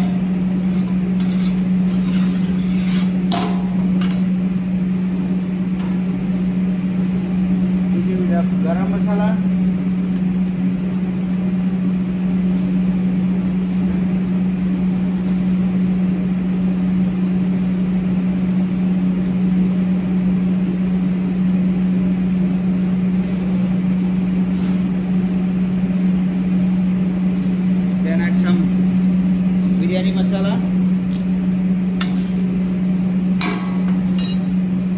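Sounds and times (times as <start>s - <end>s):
low mechanical hum: 0.0s - 34.9s.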